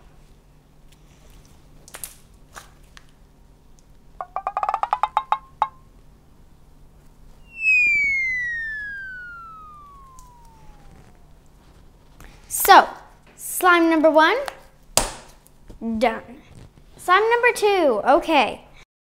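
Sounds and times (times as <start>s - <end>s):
descending cartoon whistle: 7.4s - 11.6s
rapid rising cartoon beeps: 7.5s - 11.4s.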